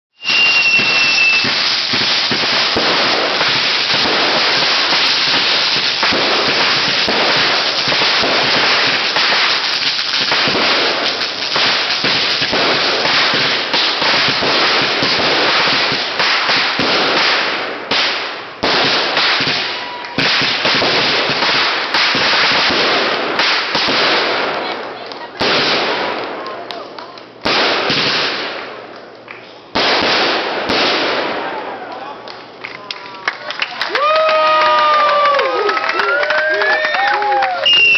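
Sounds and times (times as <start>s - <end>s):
short high firework whistle: 0.1s - 1.6s, 37.5s - 37.9s
fireworks crackling and popping: 0.1s - 37.9s.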